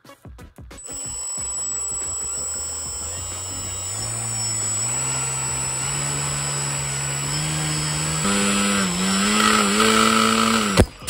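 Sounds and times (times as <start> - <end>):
electric motor whine: 0.8 - 11.0.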